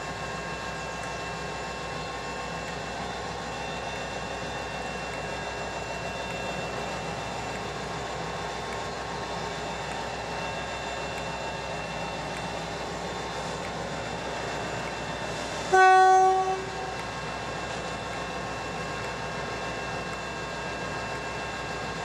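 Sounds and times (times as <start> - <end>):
diesel locomotive idling: 0.0 - 22.0
locomotive horn blast: 15.7 - 17.0.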